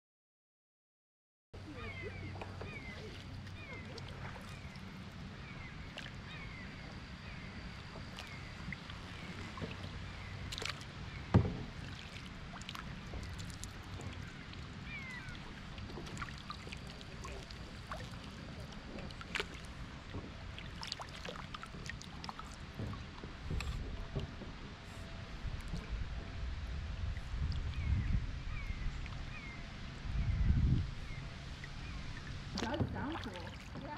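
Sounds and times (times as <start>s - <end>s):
paddle splashing through water: 1.7s - 29.6s, 30.9s - 33.9s
light paddle clicks: 8.1s - 25.9s.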